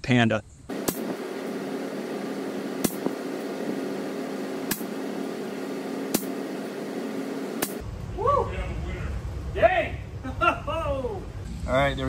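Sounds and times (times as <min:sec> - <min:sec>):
air rifle firing snaps: 0:00.7 - 0:01.4, 0:02.8 - 0:03.2, 0:04.6 - 0:05.0, 0:06.1 - 0:06.4, 0:07.6 - 0:07.8
steady hum: 0:00.7 - 0:12.0.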